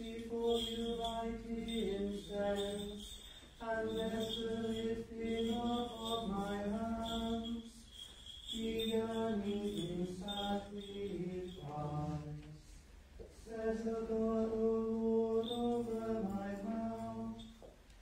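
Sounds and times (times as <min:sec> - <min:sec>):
person chanting plainsong: 0:00.0 - 0:12.5.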